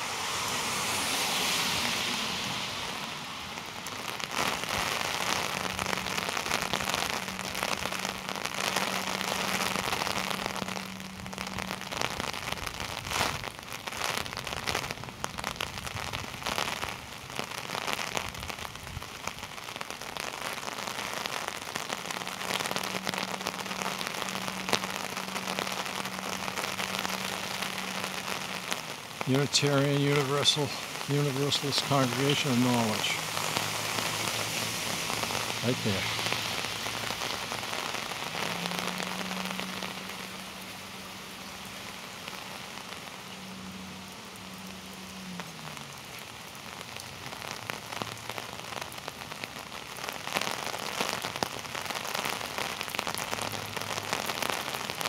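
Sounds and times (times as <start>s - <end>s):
wash of hiss: 0.0s - 5.7s, 25.8s - 43.2s
heavy rain falling: 0.0s - 55.0s
raindrops striking microphone: 0.0s - 55.0s.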